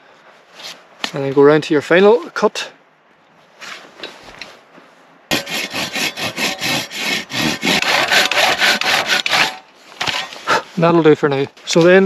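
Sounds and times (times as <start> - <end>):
hand saw cutting log: 5.3 - 10.6.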